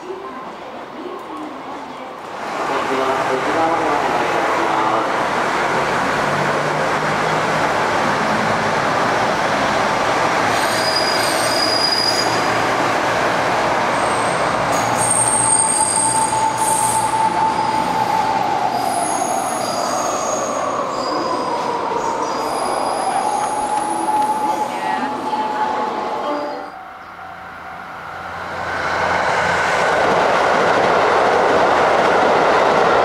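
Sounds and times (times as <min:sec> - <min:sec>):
rumble of train wheels: 0:00.0 - 0:33.0
high-pitched wheel squeal: 0:10.5 - 0:12.5.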